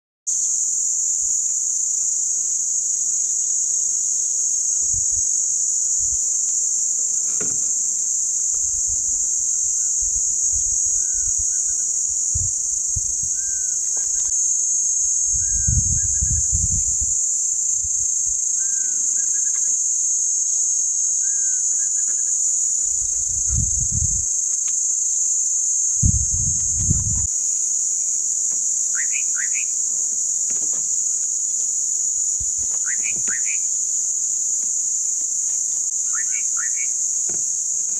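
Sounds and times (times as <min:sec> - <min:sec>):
insects droning: 0:00.3 - 0:37.9
low rumbling: 0:23.0 - 0:24.3, 0:26.0 - 0:27.3.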